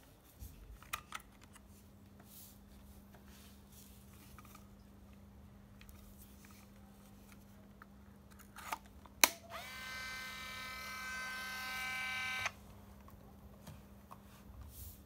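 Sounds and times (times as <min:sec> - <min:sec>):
camera motor whirring: 0:09.5 - 0:12.6.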